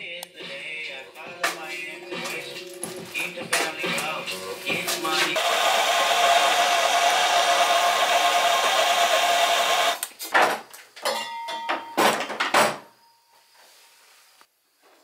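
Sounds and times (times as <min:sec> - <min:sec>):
gas torch hissing: 0:03.9 - 0:10.0.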